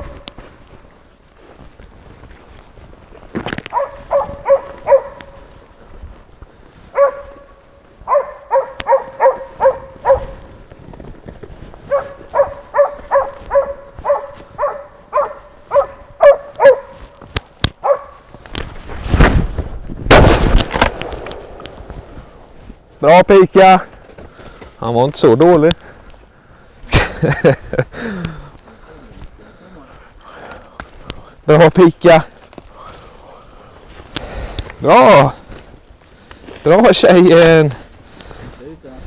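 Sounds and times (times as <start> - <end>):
dog barking sharply: 3.7 - 5.4, 6.9 - 7.4, 8.1 - 10.4, 11.9 - 17.0, 17.8 - 18.2
rifle shots: 20.1 - 22.4.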